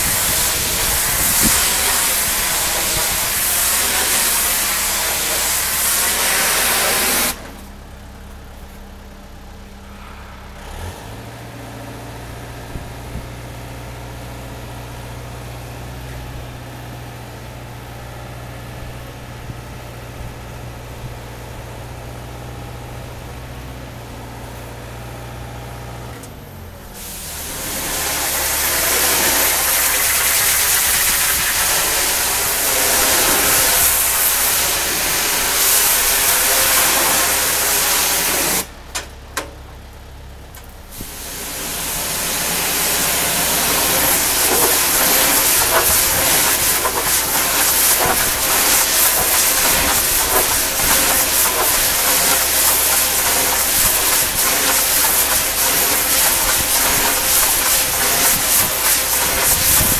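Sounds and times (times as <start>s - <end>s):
water jet hissing on concrete: 0.0s - 7.5s, 27.0s - 38.7s, 40.9s - 59.9s
engine running steadily: 0.0s - 59.9s.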